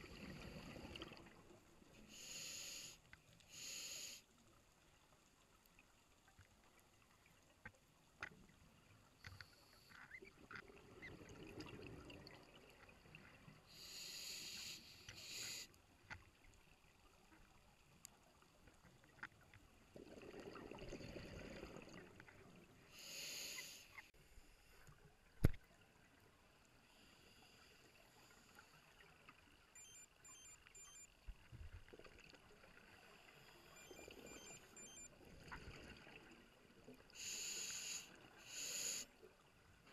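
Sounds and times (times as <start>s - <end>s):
hissing regulator inhalations: 2.1s - 4.3s, 13.7s - 15.7s, 23.0s - 24.1s, 37.2s - 39.1s
exhaled bubbles underwater: 20.0s - 22.2s.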